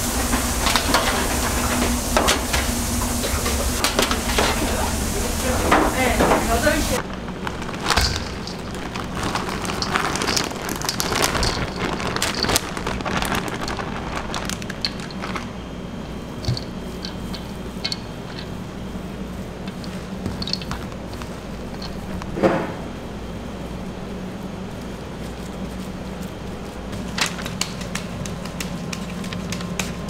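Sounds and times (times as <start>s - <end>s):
plastic bag crinkling: 4.2s - 22.4s, 23.8s - 30.0s
hands squishing mince: 24.4s - 30.0s.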